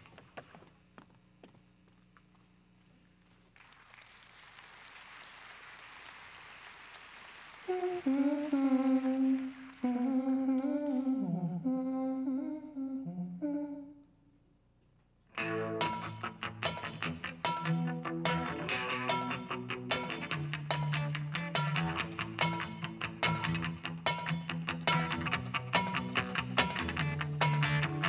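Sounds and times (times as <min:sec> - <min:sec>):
person humming melody: 0:07.7 - 0:14.1.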